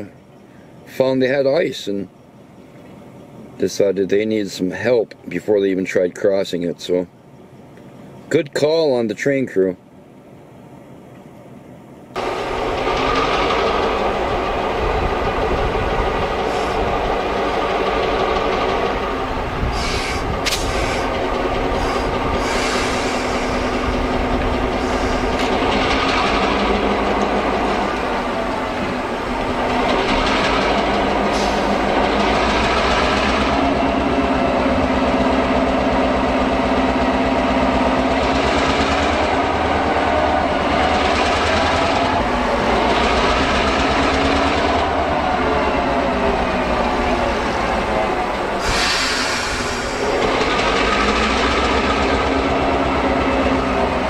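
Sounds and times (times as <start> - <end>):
diesel locomotive engine running: 0.0 - 54.0
short bursts of hiss: 19.7 - 21.1, 21.8 - 23.8, 48.6 - 50.1.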